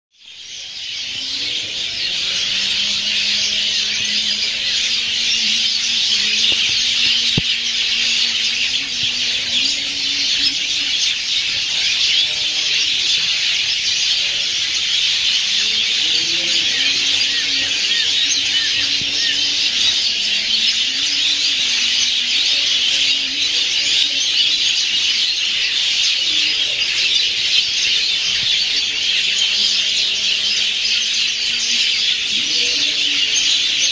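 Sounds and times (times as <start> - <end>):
bird calls: 0.2 - 33.9
high-pitched wildlife chorus: 0.2 - 33.9.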